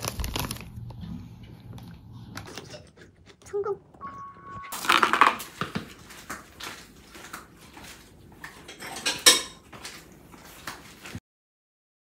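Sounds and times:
dishes and cutlery clinking: 4.0s - 11.1s.

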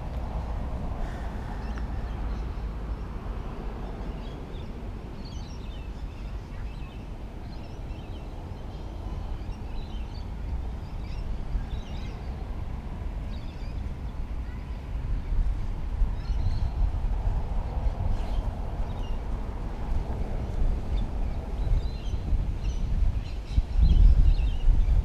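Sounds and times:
wind rumbling on microphone: 0.0s - 25.0s
birds chirping: 1.0s - 12.6s.

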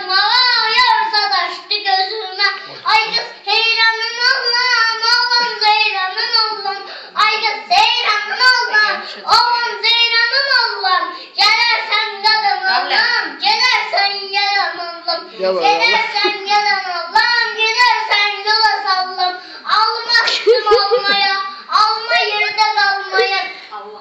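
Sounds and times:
girl singing unaccompanied: 0.0s - 24.0s.

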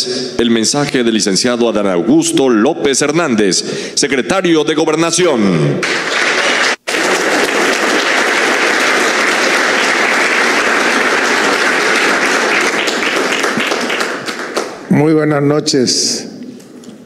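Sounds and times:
audience applauding: 5.8s - 14.9s.

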